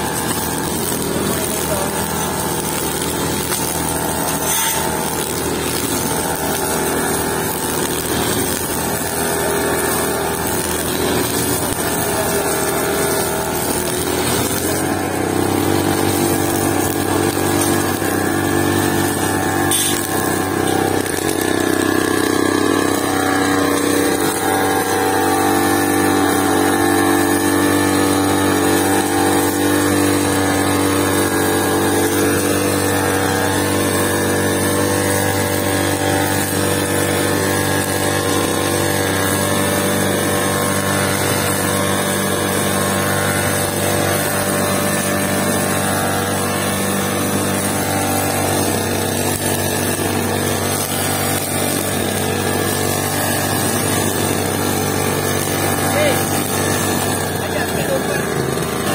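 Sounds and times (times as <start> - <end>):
brush cutter running: 0.0 - 58.9
trimmer line cutting grass: 0.0 - 58.9.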